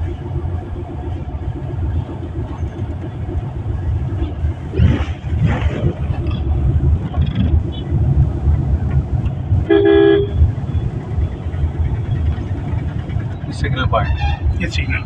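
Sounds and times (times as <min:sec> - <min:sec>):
car engine and road rumble: 0:00.0 - 0:15.0
vehicle horn toot: 0:09.6 - 0:10.4, 0:14.0 - 0:14.5.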